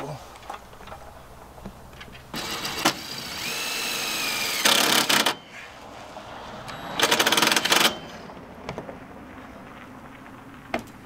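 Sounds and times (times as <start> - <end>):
cordless drill driving screw into metal: 2.3 - 5.6, 6.7 - 8.2.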